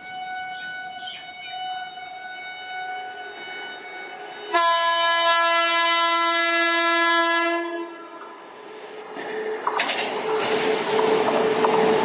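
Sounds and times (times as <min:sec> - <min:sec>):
locomotive horn blast: 0:00.0 - 0:08.2.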